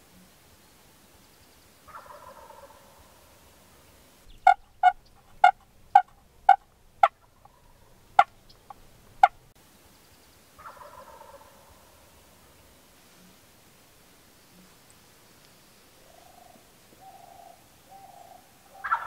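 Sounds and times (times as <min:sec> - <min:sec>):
faint turkey gobble: 0:01.9 - 0:03.5, 0:04.3 - 0:09.4, 0:10.6 - 0:12.4, 0:16.0 - 0:19.0
turkey calling sharp notes: 0:04.3 - 0:09.4.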